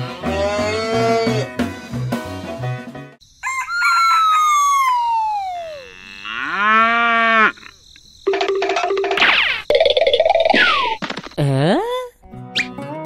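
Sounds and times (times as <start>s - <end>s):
background music: 0.0s - 3.2s, 12.2s - 13.0s
rooster crowing: 3.4s - 7.4s
cow mooing: 5.7s - 7.7s.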